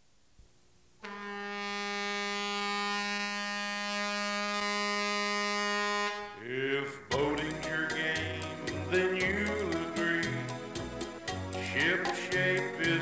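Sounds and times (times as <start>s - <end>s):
buzzy horn blast: 1.0s - 6.4s
theme music: 7.1s - 13.0s.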